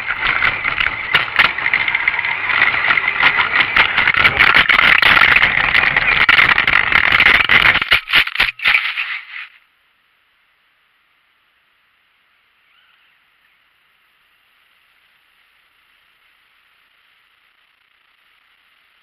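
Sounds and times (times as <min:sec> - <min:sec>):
rc car drivetrain rattling: 0:00.0 - 0:09.6
snow hitting chassis: 0:00.0 - 0:09.6
faint hiss: 0:08.6 - 0:19.0.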